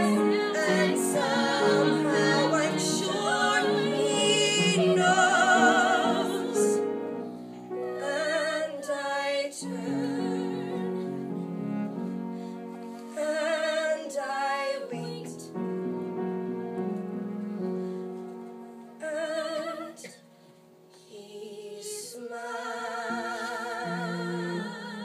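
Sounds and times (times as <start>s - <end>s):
women singing with vibrato: 0.0s - 11.4s, 13.1s - 15.5s, 19.0s - 20.2s, 21.0s - 25.0s
instrumental accompaniment: 15.5s - 19.1s.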